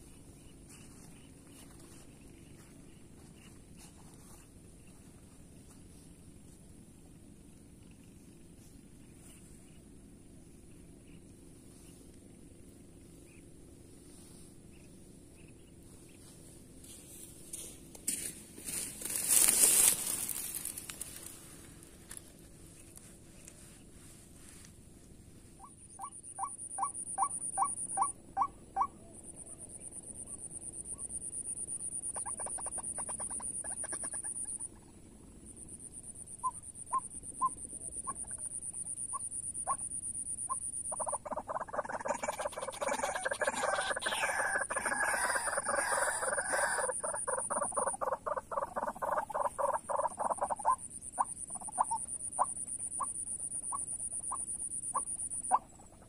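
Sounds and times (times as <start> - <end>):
waterhen calls: 40.5 - 56.0.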